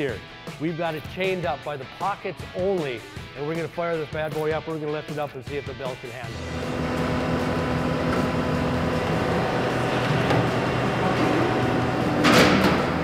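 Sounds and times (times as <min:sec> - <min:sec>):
diesel engine running: 0:06.3 - 0:13.0
loud metal clank: 0:10.1 - 0:13.0.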